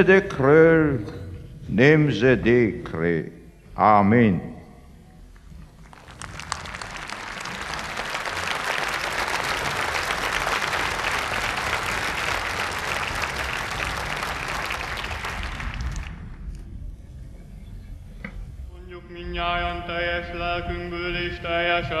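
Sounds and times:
large crowd applauding: 0:05.6 - 0:16.5.

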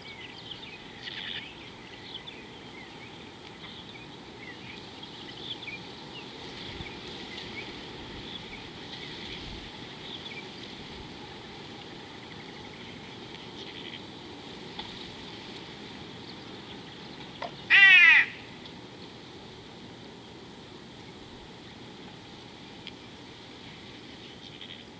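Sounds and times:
small birds chirping: 0:00.0 - 0:14.1, 0:15.9 - 0:19.2
steady outdoor hiss: 0:00.0 - 0:24.9
short falling animal call: 0:17.7 - 0:18.4.

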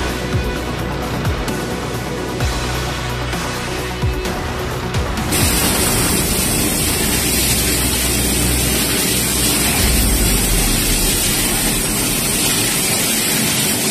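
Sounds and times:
laser cutter hissing: 0:05.3 - 0:13.9.

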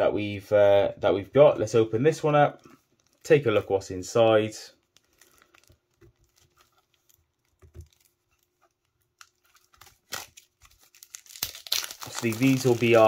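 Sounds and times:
trading card pack rustling: 0:04.8 - 0:13.0.

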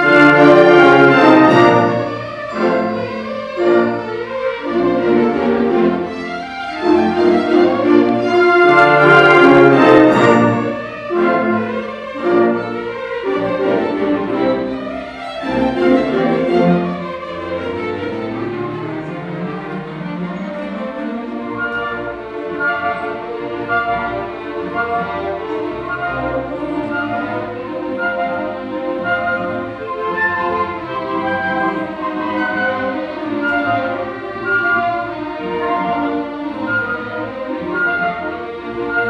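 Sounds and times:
orchestra playing a waltz: 0:00.0 - 0:39.0.

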